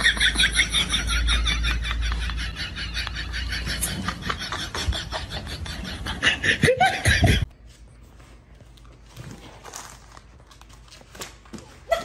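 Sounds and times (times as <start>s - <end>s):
person laughing: 0.0s - 7.5s.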